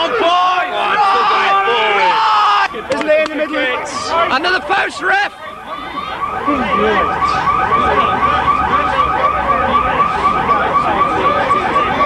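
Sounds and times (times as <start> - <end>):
electronic alarm warbling: 3.4 - 12.0.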